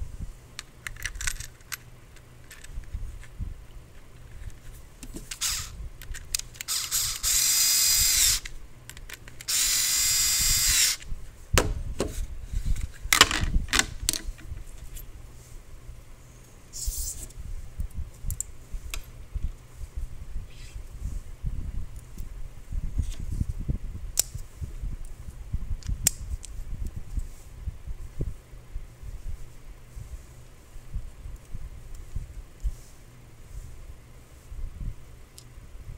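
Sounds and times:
electric screwdriver running: 5.3 - 5.8, 6.6 - 8.5, 9.4 - 11.0.

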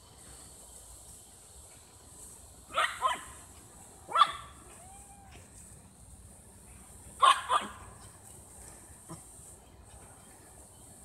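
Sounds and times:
high cicada drone: 0.0 - 11.0
small dog barking: 2.7 - 3.4, 4.1 - 4.8, 7.2 - 7.9.

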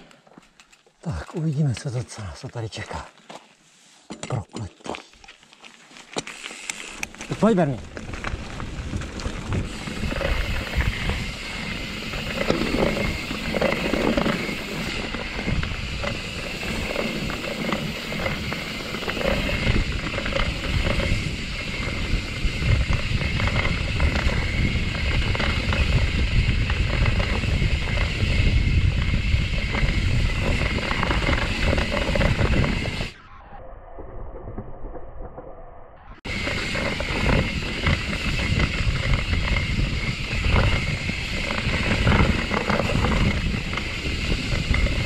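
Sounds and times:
bike rattling and clicking: 0.0 - 2.2, 4.1 - 33.2, 36.2 - 45.0
bike tyres rolling over dirt: 4.8 - 33.2, 36.2 - 45.0
low rumble: 8.2 - 43.8.

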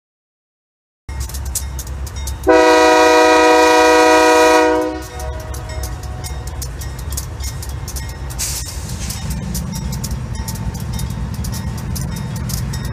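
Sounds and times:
locomotive air horn blast: 2.4 - 5.6.

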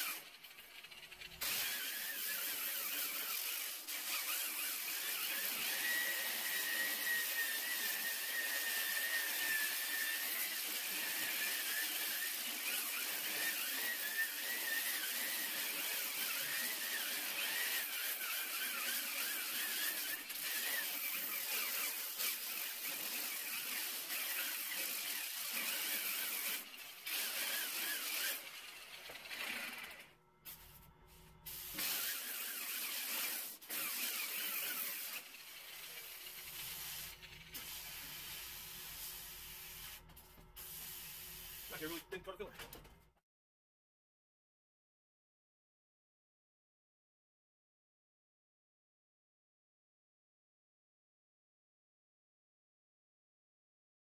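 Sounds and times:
electric sander grinding steel: 0.0 - 30.7, 31.6 - 39.6.

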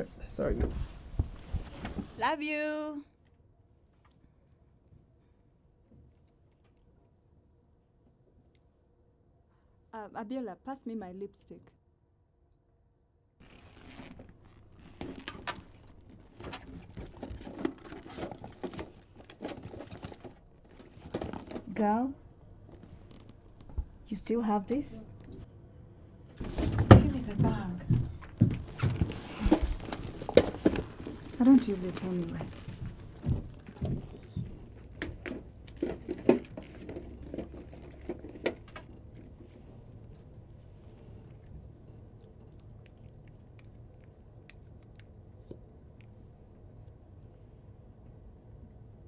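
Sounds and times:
rustling in leather handbag: 13.4 - 21.6.

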